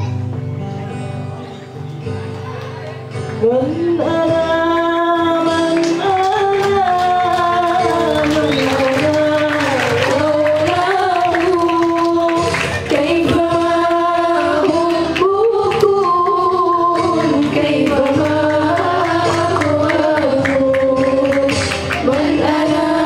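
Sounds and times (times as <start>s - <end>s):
low musical backing: 0.0s - 23.0s
group singing devotional song: 3.6s - 23.0s.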